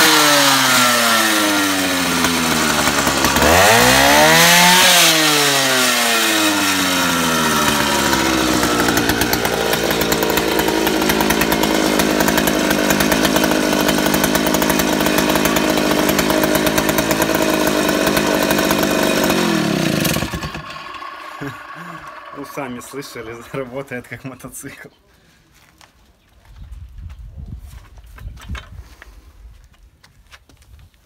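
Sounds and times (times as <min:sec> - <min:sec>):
chainsaw engine revving and idling: 0:00.0 - 0:24.5.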